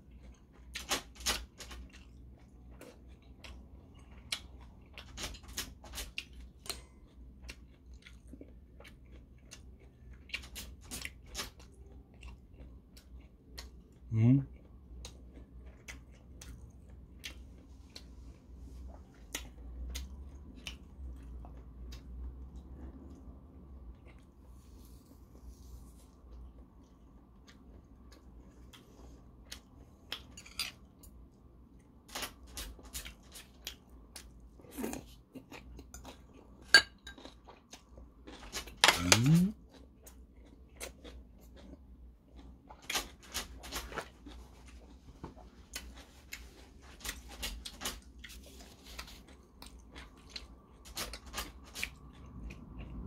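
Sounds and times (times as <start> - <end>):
person chewing: 0.0 - 53.0.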